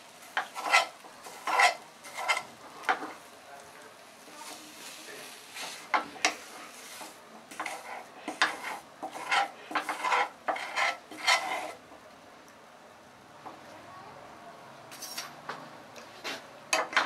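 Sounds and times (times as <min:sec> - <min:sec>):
spoon scraping frying pan: 0:00.0 - 0:03.3, 0:04.4 - 0:11.8.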